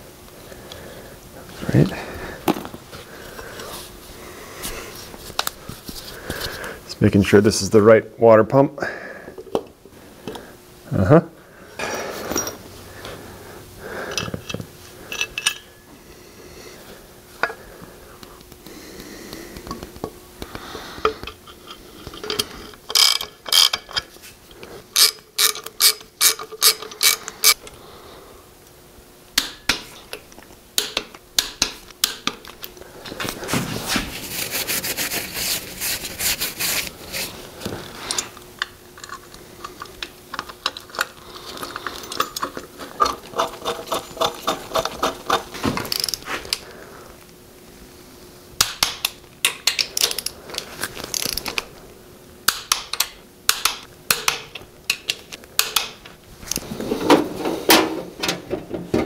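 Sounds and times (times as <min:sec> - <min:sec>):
parts being handled: 0:01.5 - 0:04.0, 0:11.8 - 0:13.2, 0:14.0 - 0:15.9, 0:17.3 - 0:27.8, 0:29.4 - 0:46.7, 0:48.6 - 0:51.8, 0:52.5 - 0:59.0
socket ratchet clicking: 0:25.0 - 0:27.6.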